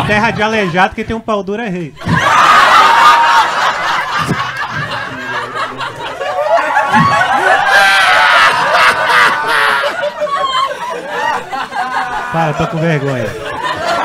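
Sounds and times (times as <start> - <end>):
audience laughing loudly: 2.0 - 14.0.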